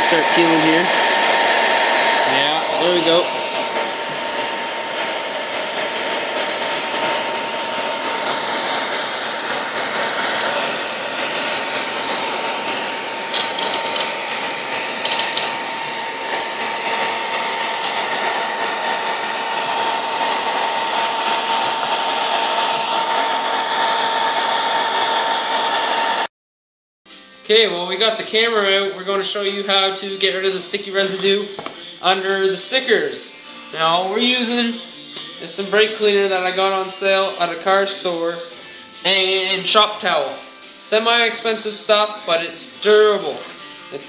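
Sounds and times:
hair dryer blowing: 0.0s - 26.3s.

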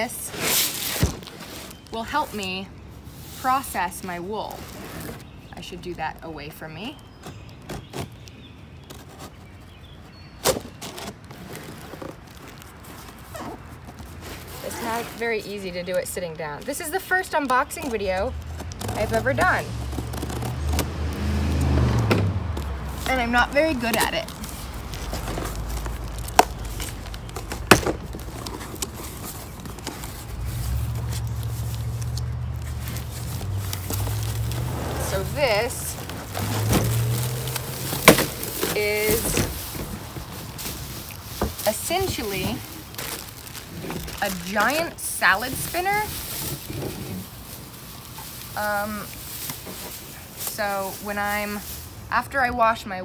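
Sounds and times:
sharp cardboard snaps: 23.8s - 30.0s.

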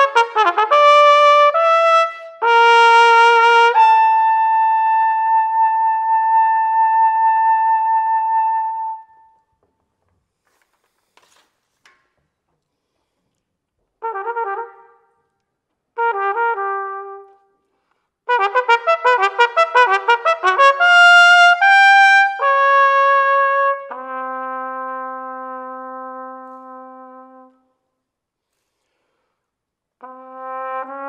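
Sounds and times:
solo trumpet: 0.0s - 9.5s, 14.0s - 27.9s, 30.0s - 31.0s.

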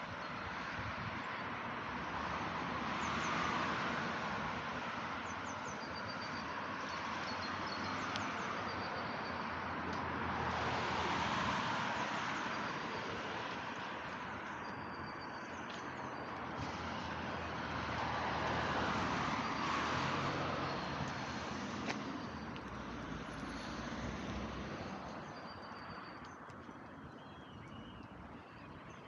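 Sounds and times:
cars passing: 0.0s - 29.0s
small birds chirping faintly: 19.2s - 29.0s.

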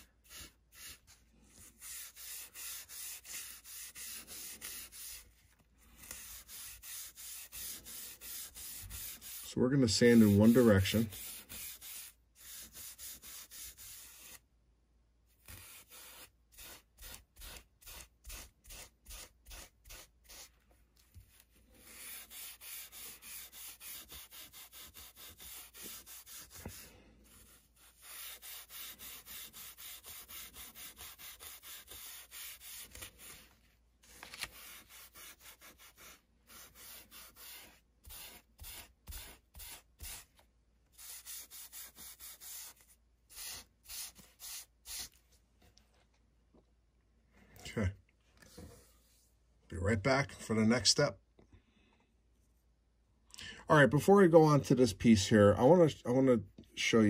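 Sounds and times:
scouring pad scratching paper: 1.7s - 5.3s, 6.0s - 14.4s, 15.4s - 20.5s, 21.8s - 33.5s, 34.1s - 40.3s, 41.0s - 45.2s.

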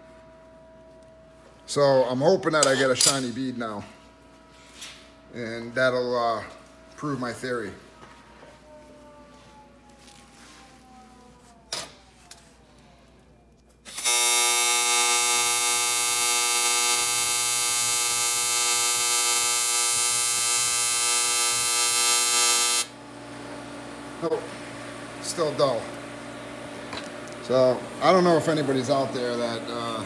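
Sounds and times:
welding arc buzzing: 13.8s - 23.0s.

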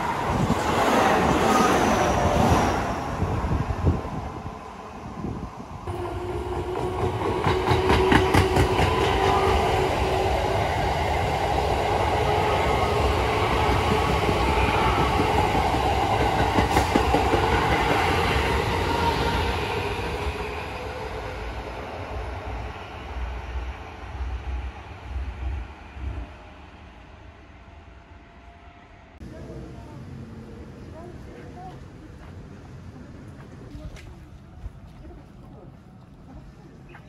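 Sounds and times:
train motor whine and rumble: 3.1s - 20.2s.

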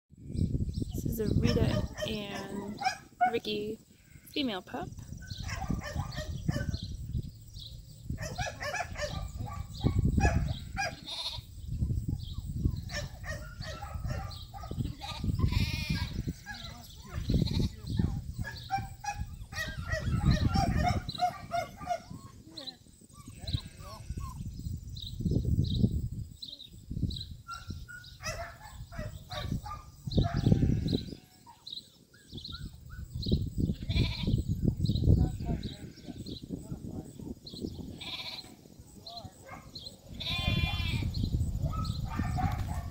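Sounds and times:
sheep bleating: 10.5s - 11.5s, 14.9s - 18.0s, 23.2s - 24.4s, 30.4s - 31.5s, 33.7s - 34.3s, 37.9s - 38.6s, 40.1s - 41.1s.

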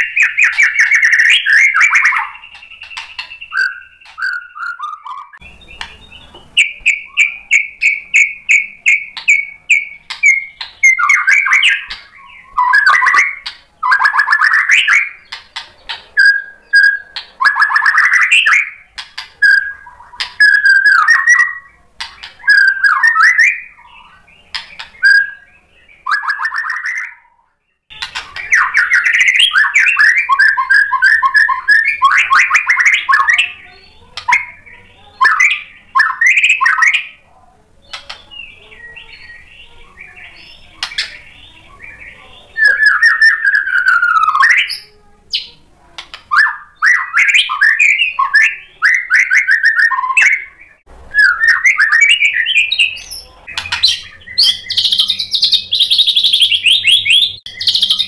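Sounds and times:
bird clicking notes: 0.0s - 14.4s, 22.0s - 22.7s
bird singing: 0.0s - 58.0s.

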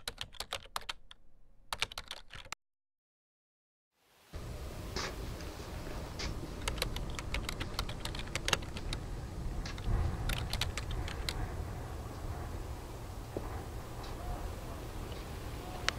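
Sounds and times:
keyboard typing clicks: 0.0s - 2.6s, 6.6s - 9.0s, 9.7s - 11.4s
steady low rumble: 4.4s - 15.9s.

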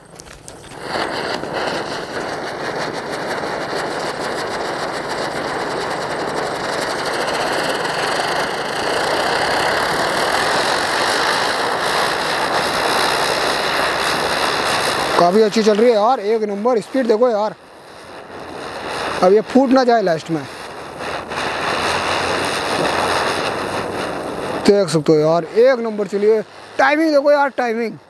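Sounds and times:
firework spinner hissing: 0.0s - 28.0s.

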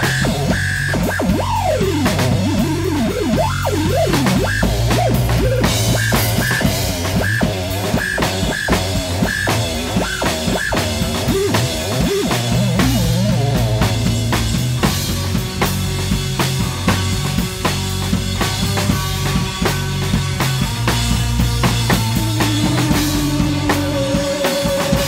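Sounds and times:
swooping electronic tones: 0.0s - 14.8s, 21.6s - 25.0s
drum-kit beat: 0.0s - 25.0s.

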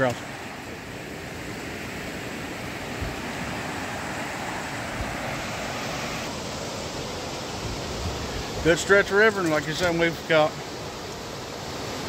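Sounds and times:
river water rushing over rocks: 0.0s - 12.0s.

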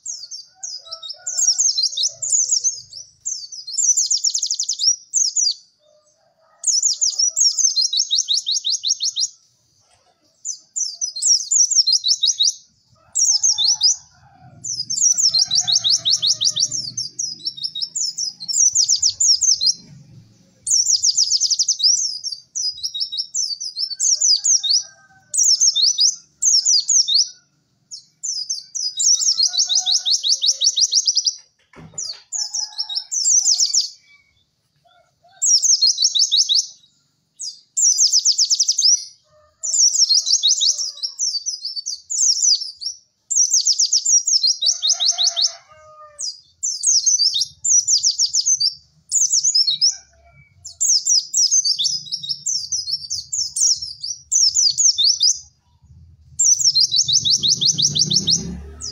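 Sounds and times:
bird singing chattering notes: 10.4s - 24.6s, 46.3s - 58.9s.

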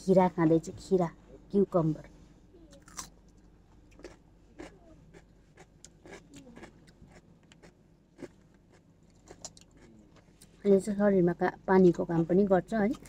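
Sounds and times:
low steady hum: 0.0s - 13.0s
person chewing cucumber: 2.7s - 10.6s.

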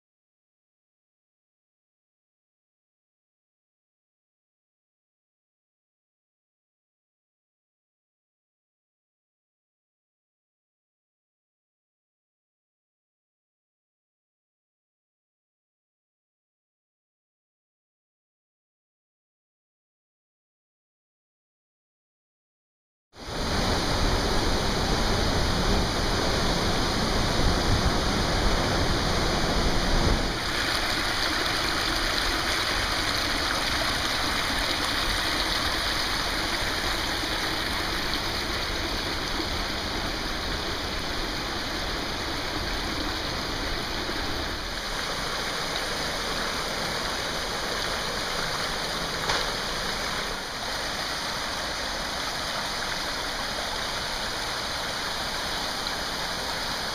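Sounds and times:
creek rushing over rocks: 23.2s - 56.9s.

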